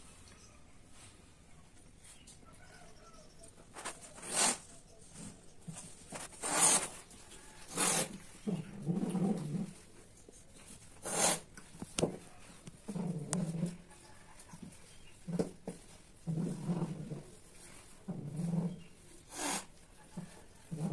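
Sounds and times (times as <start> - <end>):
cats hissing: 3.8 - 4.7, 6.2 - 9.6, 11.0 - 11.5, 18.2 - 19.8
cats growling: 7.6 - 9.8, 12.7 - 13.9, 16.2 - 17.4, 18.0 - 20.9.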